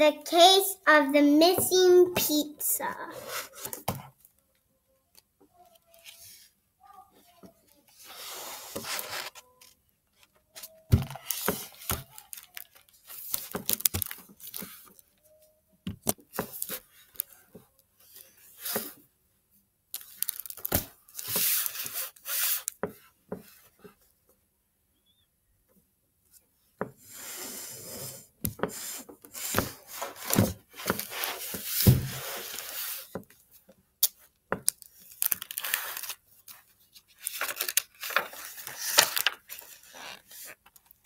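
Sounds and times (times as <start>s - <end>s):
plastic book cover crinkling: 7.9s - 15.0s, 20.0s - 22.8s, 34.7s - 41.0s.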